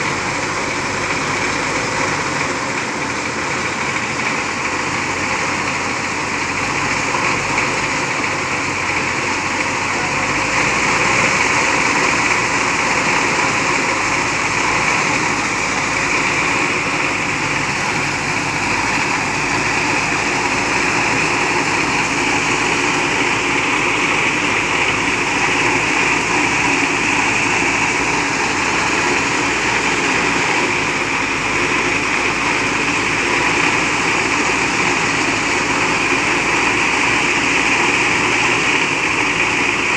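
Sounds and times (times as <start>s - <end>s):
heavy truck engine idling: 0.0s - 39.9s.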